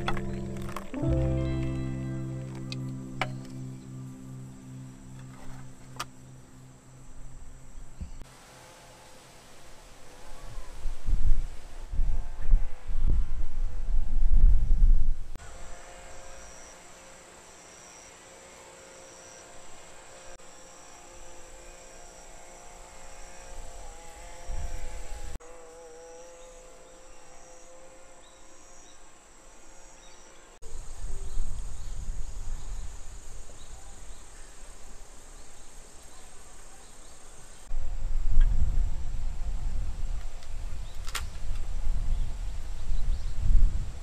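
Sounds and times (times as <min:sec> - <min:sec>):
low wavering hum: 0:00.0 - 0:08.2
insects chirping: 0:02.7 - 0:08.2
wind gusts on microphone: 0:10.3 - 0:15.4, 0:30.7 - 0:34.2, 0:37.7 - 0:44.0.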